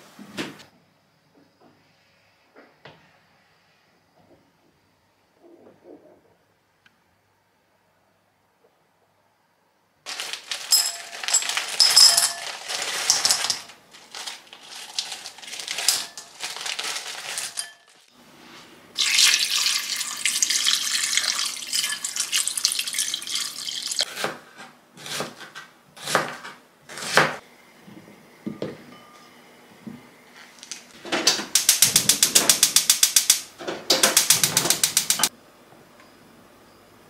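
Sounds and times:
tap water running: 19.0s - 24.0s.

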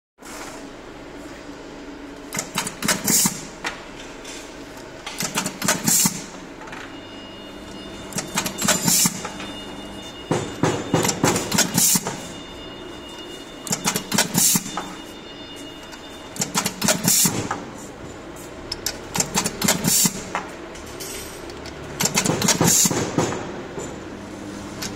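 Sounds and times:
sharp mechanical clacks: 2.3s - 3.5s, 5.0s - 6.3s, 8.1s - 9.4s, 13.7s - 14.9s, 16.4s - 17.6s, 18.7s - 24.0s.

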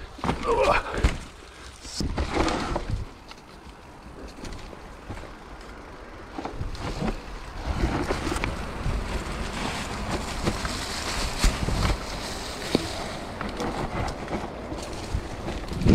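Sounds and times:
bike rattles and clicks: 0.0s - 15.9s
bike tyre noise: 0.0s - 15.9s
wind buffeting microphone: 6.4s - 15.9s.

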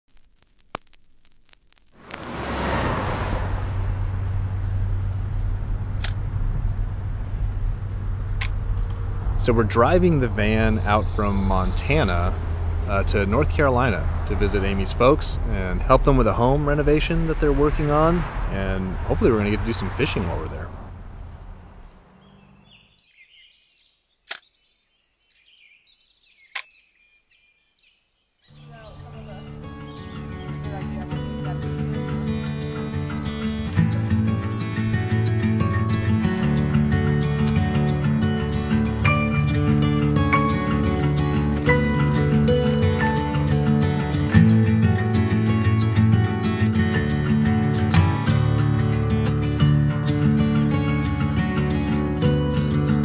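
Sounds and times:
wind noise rushing: 2.0s - 9.4s, 10.4s - 22.2s
low rumble: 2.0s - 22.8s
van road and engine rumble: 2.0s - 22.9s, 28.6s - 53.0s
songbirds chirping: 8.6s - 34.3s, 36.3s - 47.9s, 48.6s - 53.0s
sharp click: 24.2s - 24.5s, 26.5s - 26.7s.

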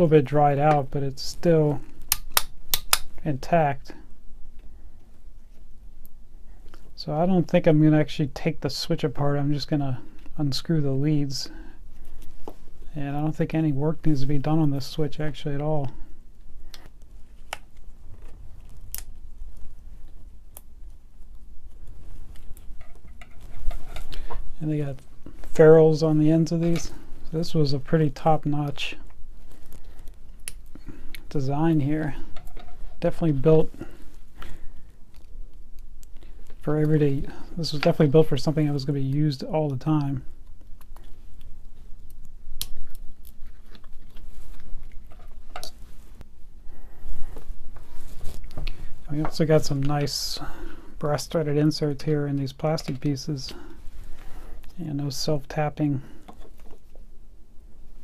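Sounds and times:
sharp clicks: 2.0s - 3.2s.

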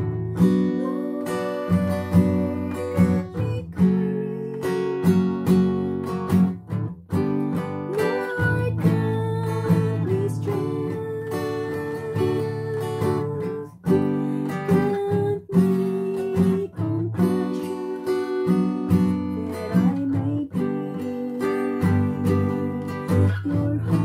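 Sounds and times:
woman singing: 0.0s - 5.5s, 7.5s - 24.0s
acoustic guitar strumming: 0.0s - 24.0s.

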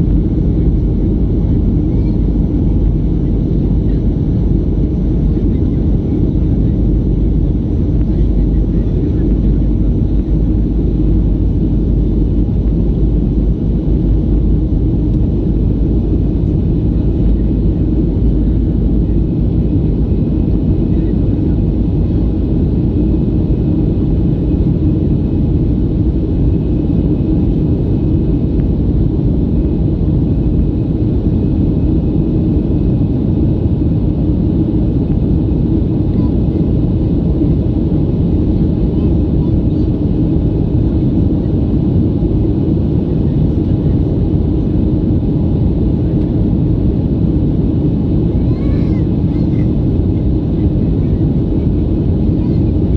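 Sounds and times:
airplane cabin engine rumble: 0.0s - 52.9s.

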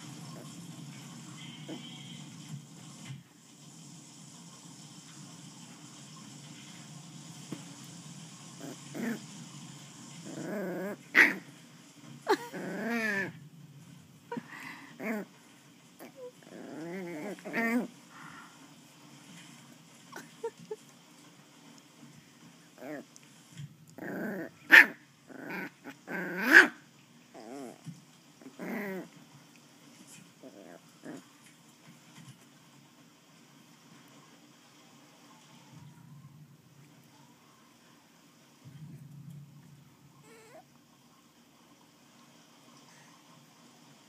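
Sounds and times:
puppy growling: 8.5s - 9.4s, 10.0s - 11.6s, 12.2s - 13.5s, 14.2s - 15.4s, 16.0s - 18.0s, 22.8s - 23.2s, 23.9s - 29.2s, 30.1s - 31.4s, 40.2s - 40.7s
puppy yapping: 10.3s - 11.4s
puppy barking: 11.1s - 11.4s, 24.7s - 25.0s.

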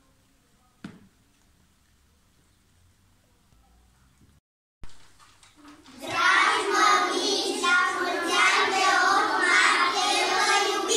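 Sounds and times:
children singing in unison: 6.0s - 10.9s.

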